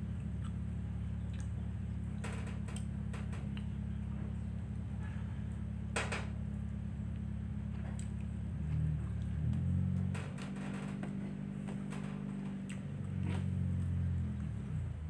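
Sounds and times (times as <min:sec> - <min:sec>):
steady low hum: 0:00.0 - 0:15.0
soft eating clicks and smacks: 0:00.1 - 0:04.1, 0:07.1 - 0:10.1, 0:11.7 - 0:14.6.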